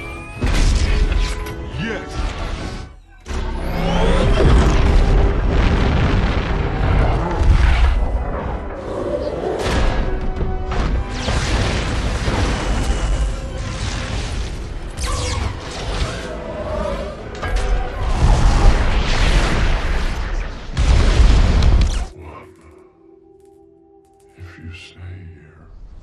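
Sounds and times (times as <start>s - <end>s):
dramatic film score: 0.0s - 26.0s
booms and impacts: 4.2s - 8.8s, 9.6s - 16.1s, 17.4s - 22.1s.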